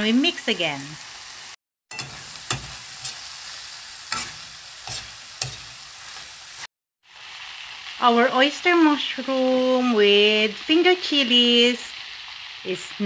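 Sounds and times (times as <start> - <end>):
vegetables sizzling in a wok: 0.0 - 13.0
metal spatula scraping a pan: 1.9 - 6.4.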